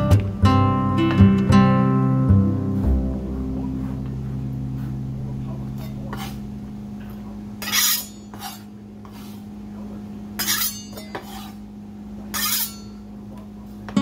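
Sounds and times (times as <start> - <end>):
knife scraping cutting board: 5.8 - 6.4, 7.6 - 9.4, 10.4 - 11.6, 12.3 - 12.9.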